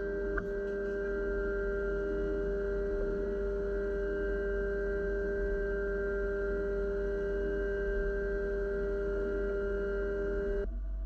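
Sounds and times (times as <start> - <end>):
milling machine ringing tone: 0.0 - 10.6.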